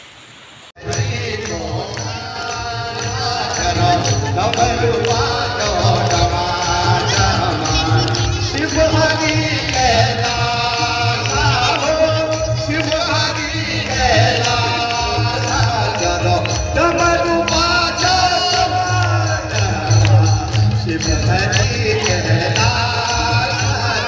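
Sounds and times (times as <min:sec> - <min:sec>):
devotional music over loudspeakers: 0:00.8 - 0:24.0
person singing: 0:00.8 - 0:24.0
heavy pulsing bass beat: 0:00.9 - 0:24.0.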